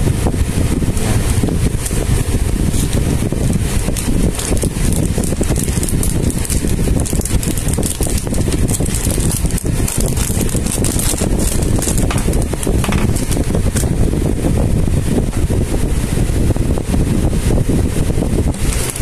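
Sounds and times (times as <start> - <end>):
wind noise on microphone: 0.0 - 19.0
plastic bag crinkling: 3.6 - 13.9, 18.5 - 19.0.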